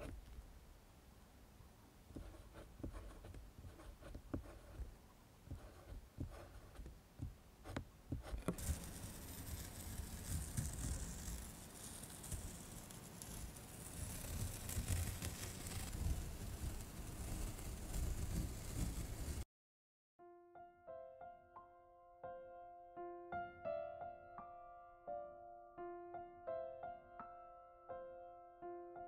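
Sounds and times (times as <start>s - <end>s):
pencil scratching on paper: 2.1s - 4.9s, 5.5s - 6.9s, 7.6s - 19.4s.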